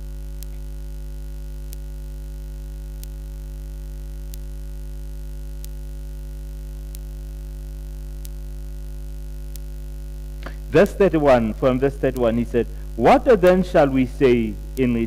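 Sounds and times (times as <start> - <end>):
electrical mains hum: 0.0 - 15.0
faint sharp clicks: 0.4 - 0.7, 1.6 - 1.9, 5.6 - 5.8, 8.2 - 8.4.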